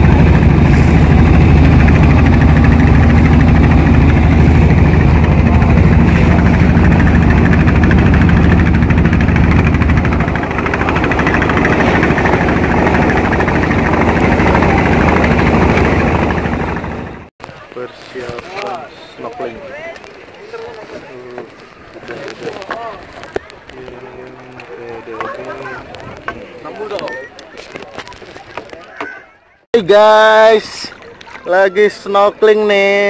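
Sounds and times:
boat engine running: 0:00.0 - 0:19.4
wind: 0:00.0 - 0:33.0.

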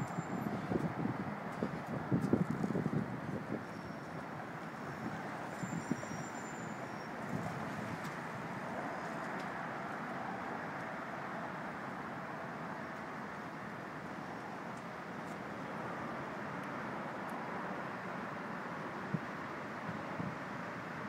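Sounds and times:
road traffic noise: 0:00.0 - 0:21.0
faint high squeaks: 0:05.5 - 0:07.1.

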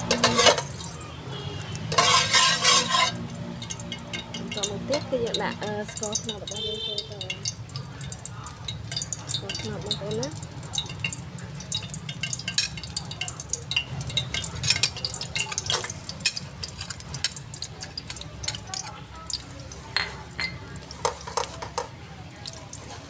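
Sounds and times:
metal spoon scraping and clicking: 0:00.0 - 0:01.0, 0:01.7 - 0:06.6, 0:07.2 - 0:21.9.

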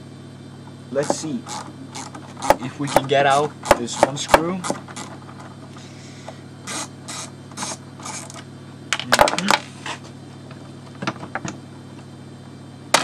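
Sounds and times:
steady low hum: 0:00.0 - 0:13.0
plastic scraping: 0:01.0 - 0:05.7.

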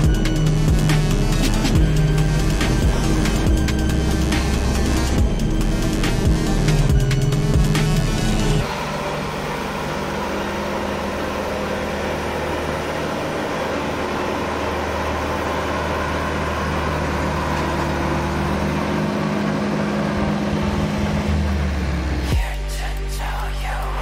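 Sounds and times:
tractor diesel engine running: 0:00.0 - 0:24.0.

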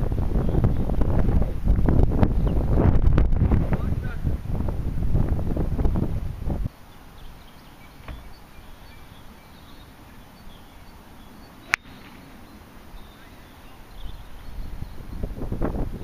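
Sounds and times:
golf club hitting ball: 0:11.6 - 0:12.3.

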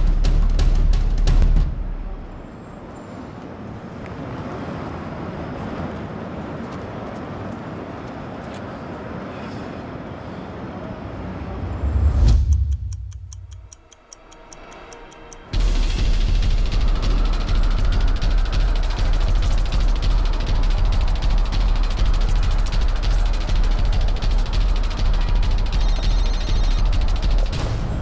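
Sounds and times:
quick even ticking: 0:12.2 - 0:27.6
low rumble: 0:15.4 - 0:28.0.

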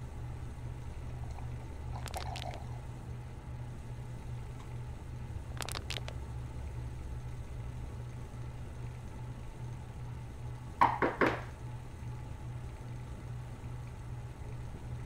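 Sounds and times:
foil snack bag crinkling: 0:02.0 - 0:02.7, 0:05.6 - 0:06.1.

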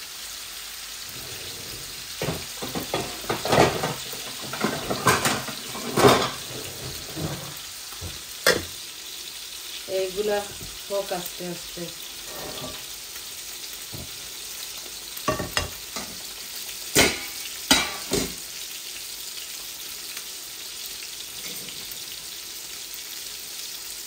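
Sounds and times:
fish sizzling in hot oil: 0:00.0 - 0:24.0
cookware knocking: 0:02.2 - 0:08.7, 0:15.3 - 0:15.8.

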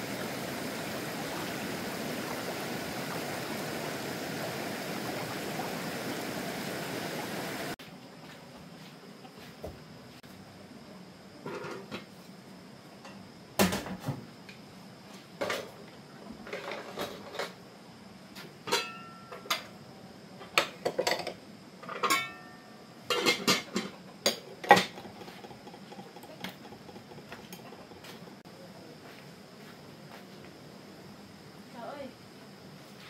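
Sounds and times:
dishes and cutlery clattering: 0:18.7 - 0:19.5, 0:20.8 - 0:24.0.

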